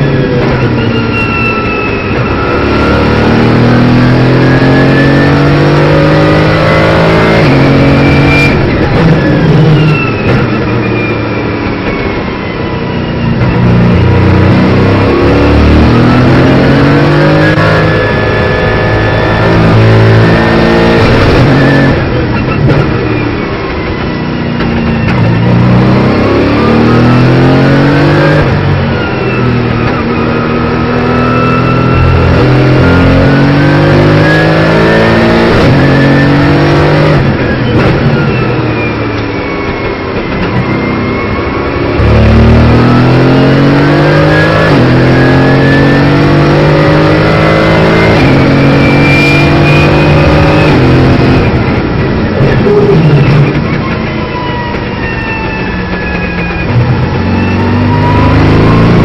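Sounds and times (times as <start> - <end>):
car engine at full throttle: 0.0 - 59.0.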